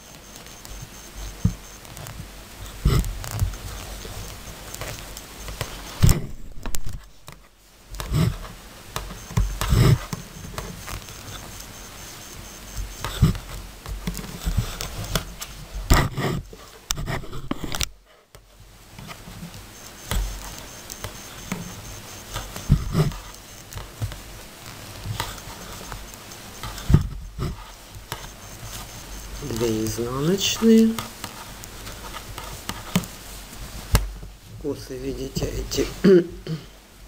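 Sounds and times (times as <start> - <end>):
yarn and fabric rustling: 0.0 - 17.8, 18.5 - 36.1.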